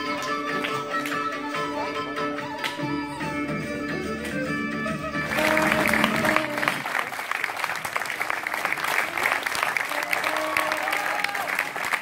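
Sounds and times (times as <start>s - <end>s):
music track: 0.0s - 6.9s
audience applauding: 5.2s - 12.0s.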